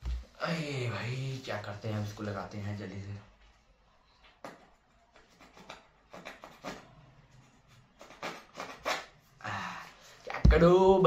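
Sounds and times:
lotion tube rubbing and clicking: 0:08.0 - 0:09.2.

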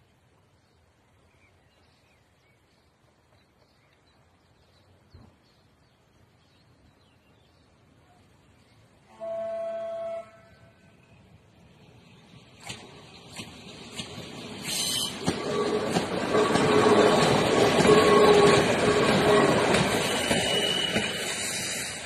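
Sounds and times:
train horn blast: 0:09.0 - 0:10.9, 0:14.7 - 0:21.2.

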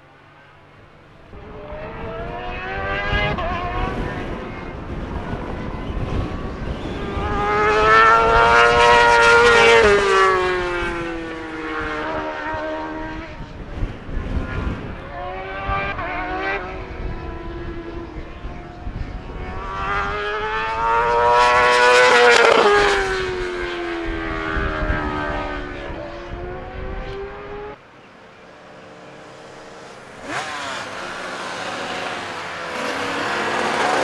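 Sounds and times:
racing motorcycle passing by: 0:01.2 - 0:34.0.

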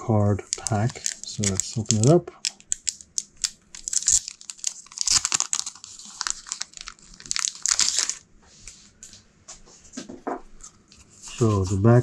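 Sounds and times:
plastic wrap crinkling and tearing: 0:00.0 - 0:08.2.

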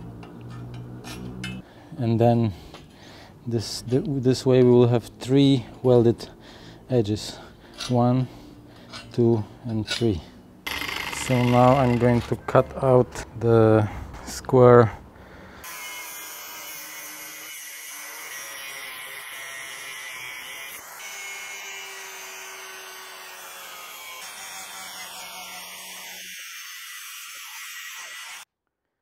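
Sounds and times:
angle grinder cutting steel: 0:10.7 - 0:12.5, 0:15.6 - 0:28.5.

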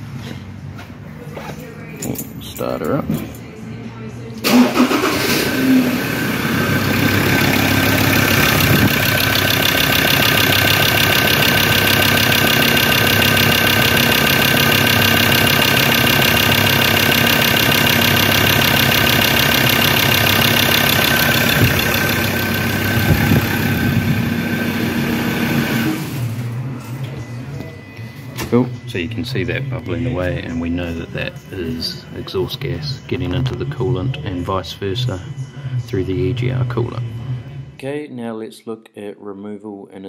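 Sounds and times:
diesel engine starting and idling: 0:04.4 - 0:26.8.

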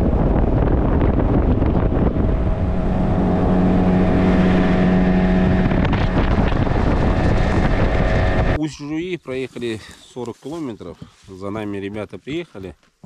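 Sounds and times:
outboard motor running: 0:00.0 - 0:08.6
wind buffeting microphone: 0:00.0 - 0:08.6.

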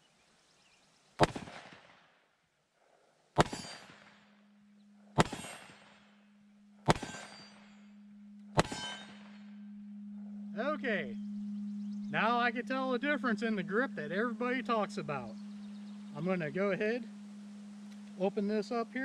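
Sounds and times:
steady low hum: 0:02.8 - 0:19.0
revolver shots: 0:03.4 - 0:04.1, 0:05.2 - 0:05.8, 0:06.8 - 0:07.6, 0:08.5 - 0:09.4.

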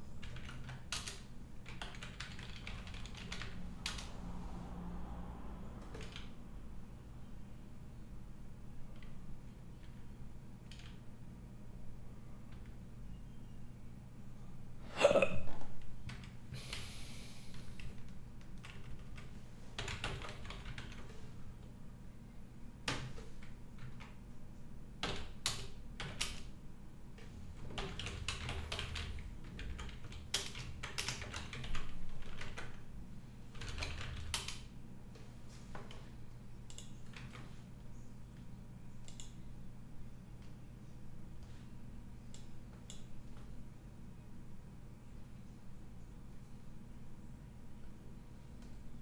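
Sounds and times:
low steady hum: 0:00.0 - 0:49.0
typing on keyboard: 0:00.2 - 0:04.1, 0:05.8 - 0:06.4, 0:09.8 - 0:11.1, 0:16.0 - 0:16.8, 0:17.7 - 0:21.2, 0:22.8 - 0:24.2, 0:25.0 - 0:26.6, 0:27.6 - 0:32.9, 0:33.5 - 0:34.7, 0:36.6 - 0:37.6.

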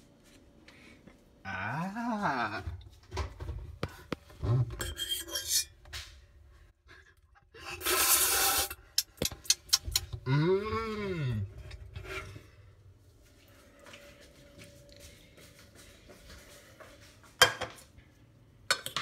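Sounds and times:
burst of hiss: 0:07.8 - 0:08.8
person saying ooh: 0:10.3 - 0:11.5.

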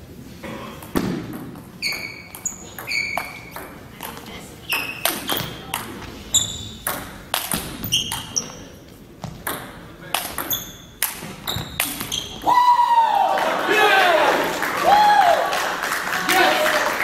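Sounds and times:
ping-pong ball hits: 0:06.8 - 0:08.4, 0:09.3 - 0:12.1.

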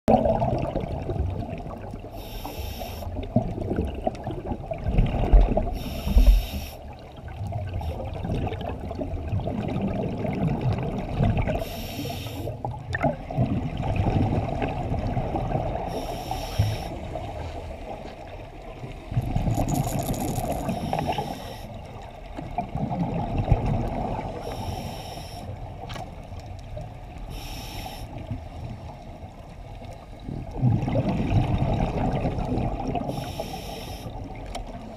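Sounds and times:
exhaled bubbles rumbling: 0:00.1 - 0:02.2, 0:03.2 - 0:16.1, 0:16.7 - 0:24.6, 0:30.1 - 0:33.3
regulator breath hiss: 0:02.2 - 0:03.1, 0:05.8 - 0:06.8, 0:11.6 - 0:12.6, 0:15.9 - 0:17.0, 0:20.7 - 0:21.8, 0:24.4 - 0:25.5, 0:27.3 - 0:28.2, 0:33.1 - 0:34.2.

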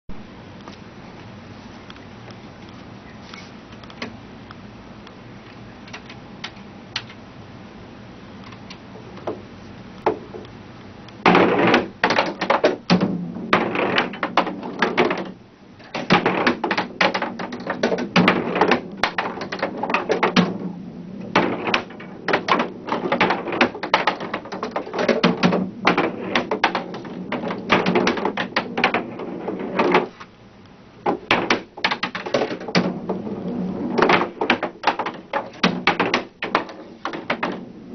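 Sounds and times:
balls clattering into ball return: 0:08.6 - 0:09.4, 0:10.0 - 0:10.5, 0:11.2 - 0:30.3, 0:31.0 - 0:37.9
skee-ball balls rolling and knocking: 0:08.6 - 0:37.9.

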